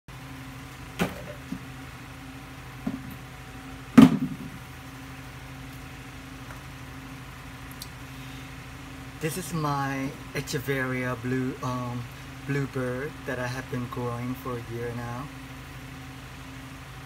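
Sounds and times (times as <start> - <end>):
low electrical hum: 0.1 - 17.0
knocks on hard surface: 4.0 - 4.6.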